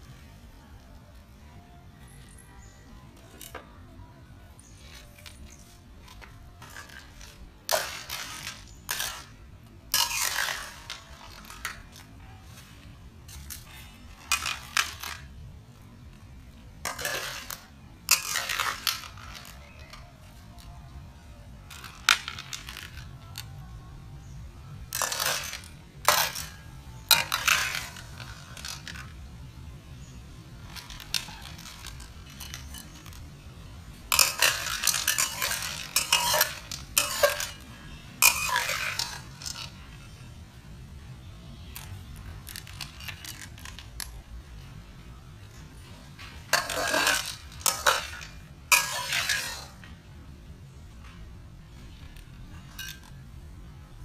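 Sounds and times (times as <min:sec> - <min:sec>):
shells and cookware clattering: 0:34.1 - 0:37.6, 0:38.2 - 0:39.8, 0:46.4 - 0:49.8.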